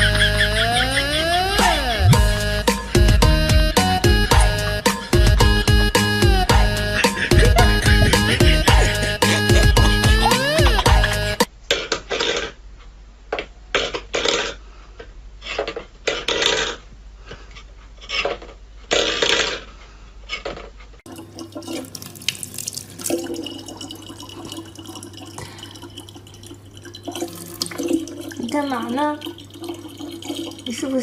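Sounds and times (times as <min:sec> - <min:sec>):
low steady hum: 0:21.1 - 0:31.0
water running into plastic bottle: 0:21.1 - 0:31.0.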